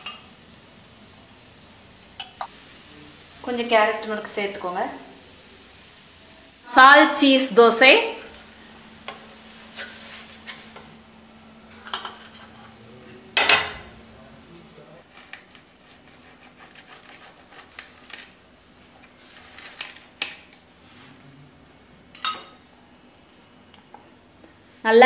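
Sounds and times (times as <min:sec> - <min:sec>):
dosa sizzling on a pan: 0:00.0 - 0:24.9
wooden spatula scraping: 0:09.0 - 0:11.0, 0:15.0 - 0:18.3.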